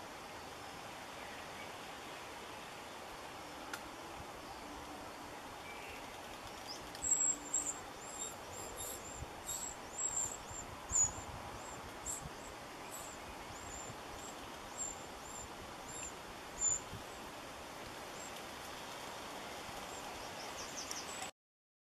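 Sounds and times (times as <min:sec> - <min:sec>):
wrens chirping high: 0:06.0 - 0:17.2.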